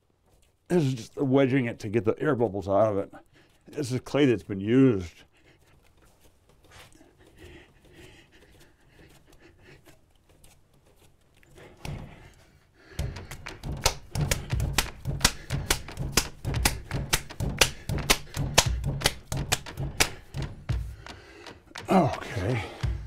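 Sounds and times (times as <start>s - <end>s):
clay being wedged by hand: 7.9s - 23.0s
heavy thuds with sharp knocks: 11.8s - 23.0s.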